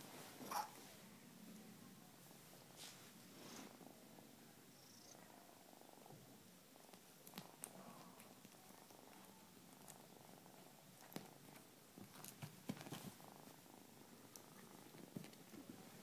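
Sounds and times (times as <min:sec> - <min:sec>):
cat purring: 0:02.3 - 0:16.0
soft taps and rustles: 0:11.0 - 0:13.6, 0:14.3 - 0:16.0.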